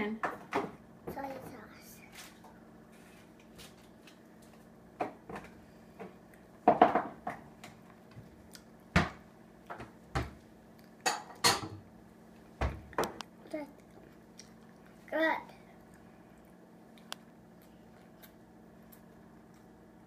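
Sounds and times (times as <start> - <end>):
dishes and cutlery clinking: 11.1 - 11.8.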